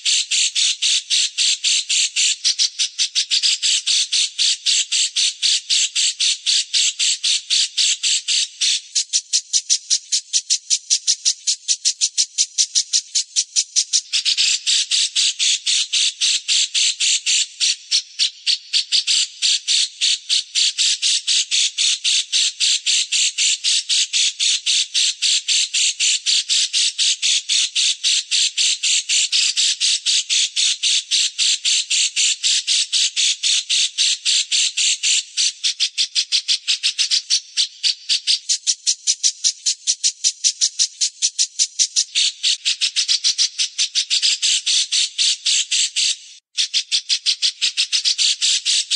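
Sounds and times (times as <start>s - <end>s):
songbird chirping harshly: 35.4s - 48.9s.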